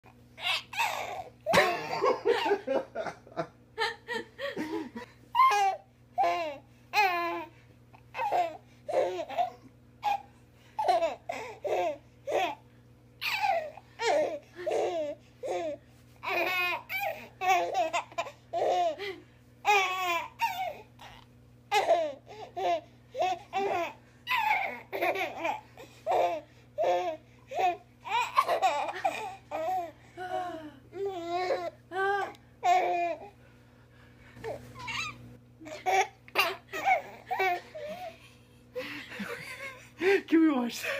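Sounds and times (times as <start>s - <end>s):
baby giggling: 0.4s - 2.7s, 21.7s - 29.9s, 34.8s - 38.2s.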